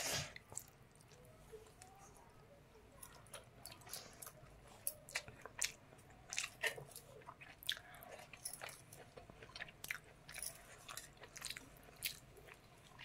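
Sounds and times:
person chewing with mouth clicks: 0:03.1 - 0:13.0.

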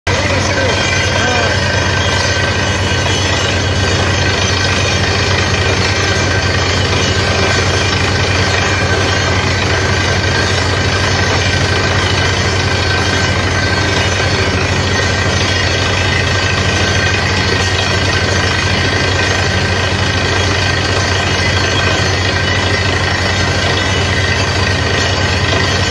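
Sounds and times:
drilling rig engine rumble: 0:00.1 - 0:25.9
high whine: 0:00.1 - 0:25.9.

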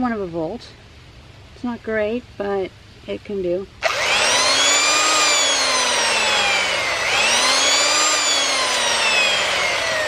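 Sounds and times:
power tool motor running: 0:03.8 - 0:10.0.

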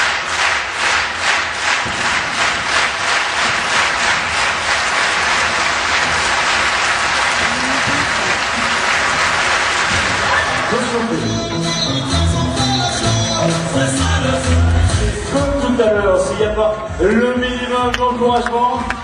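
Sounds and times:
crowd applauding: 0:00.0 - 0:12.9.

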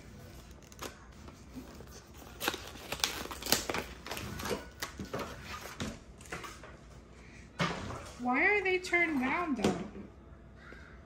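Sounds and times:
packaging rustle: 0:00.3 - 0:05.8.

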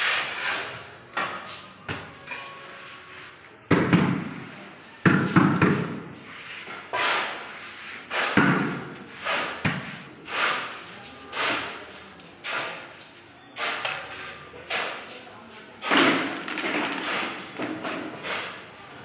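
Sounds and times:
thumps and bangs echoing in hall: 0:03.7 - 0:06.2.

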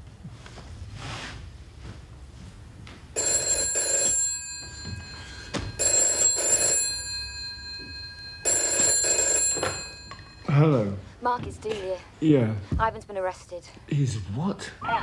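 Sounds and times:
desk telephone ringing: 0:03.2 - 0:10.5.

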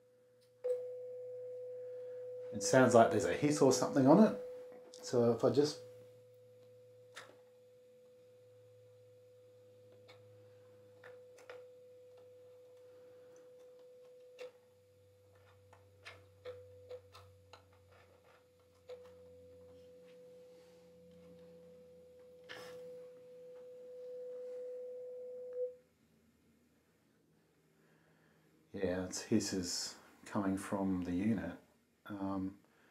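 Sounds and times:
sine-wave test tone: 0:00.0 - 0:26.0.

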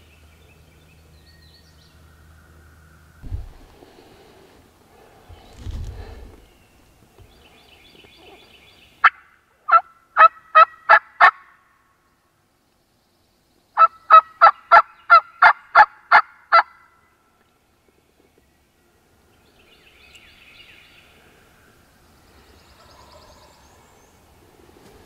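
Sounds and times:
turkey call yelps: 0:09.0 - 0:11.6.

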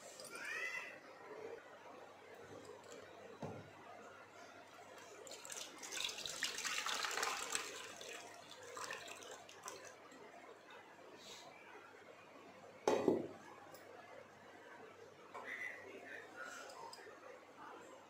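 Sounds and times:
liquid pouring through strainer: 0:05.0 - 0:10.0.

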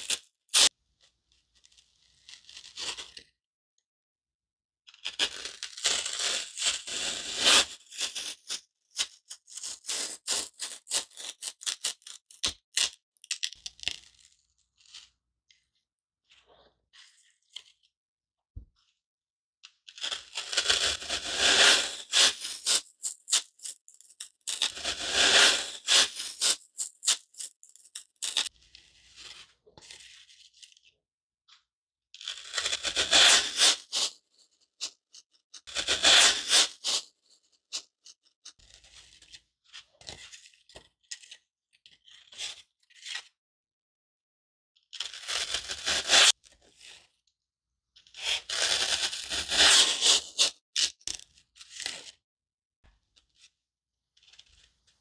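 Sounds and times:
foam block being cut: 0:05.1 - 0:08.5, 0:20.0 - 0:27.4, 0:32.2 - 0:34.1, 0:35.6 - 0:37.0, 0:45.0 - 0:46.4, 0:48.2 - 0:50.9.

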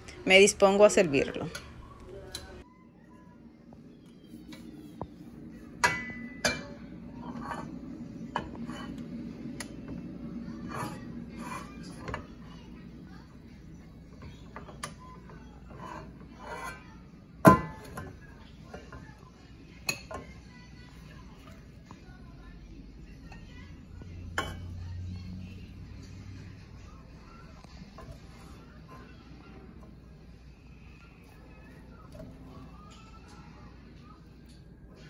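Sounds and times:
ladle scraping and clinking: 0:05.7 - 0:12.6.

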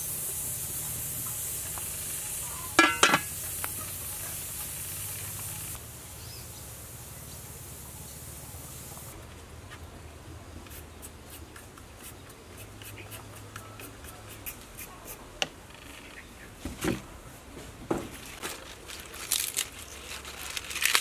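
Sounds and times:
peeler scraping a carrot: 0:10.7 - 0:15.2
leaves snapping and tearing: 0:18.4 - 0:21.0.

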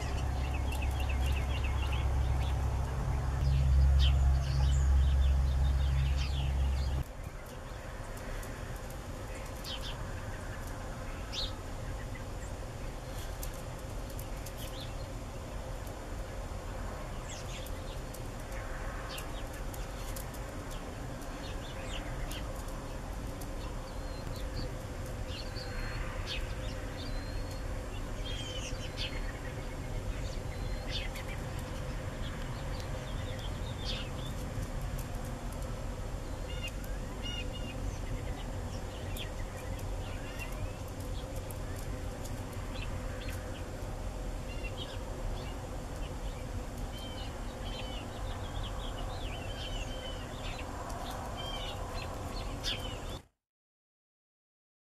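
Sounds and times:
low rumble: 0:00.0 - 0:07.0
small birds chirping: 0:00.0 - 0:53.3.

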